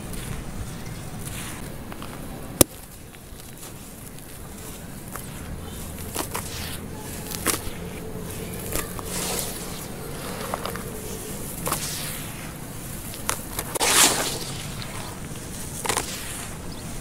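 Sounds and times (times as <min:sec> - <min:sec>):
powder pouring: 0:11.6 - 0:16.5.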